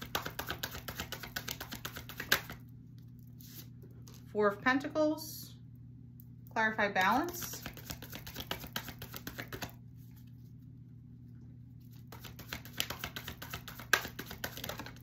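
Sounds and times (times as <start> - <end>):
cards being shuffled: 0.0 - 2.6, 3.4 - 4.2, 7.3 - 10.3, 11.9 - 15.0.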